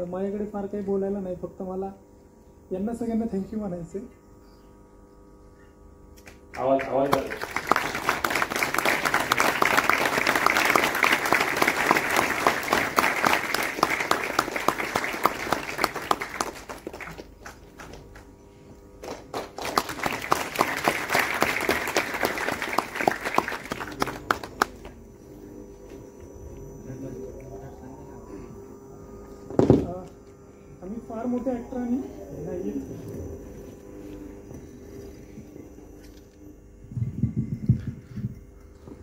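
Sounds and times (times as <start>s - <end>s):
audience applauding: 6.6s - 18.3s, 19.0s - 25.0s.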